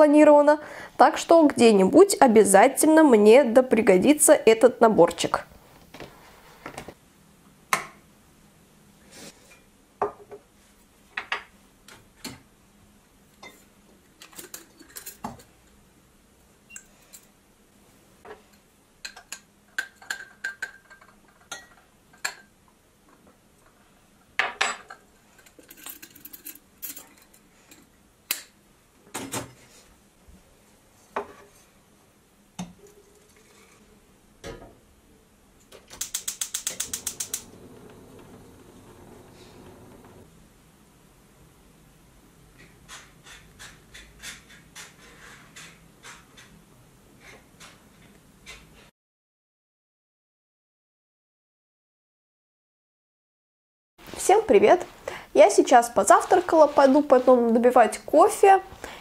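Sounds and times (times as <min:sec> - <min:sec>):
gas igniter clicking rapidly: 0:36.0 - 0:37.5
gas burner hissing: 0:36.0 - 0:40.6.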